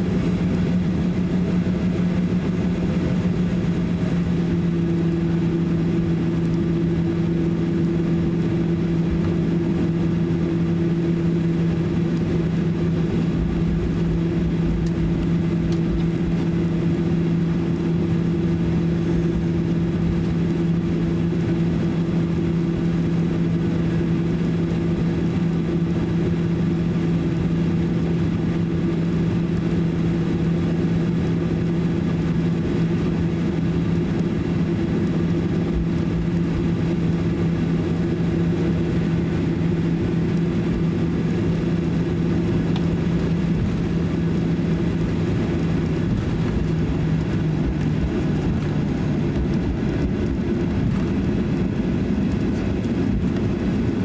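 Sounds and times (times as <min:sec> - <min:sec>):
jet engine cabin hum and roar: 0:00.0 - 0:54.0.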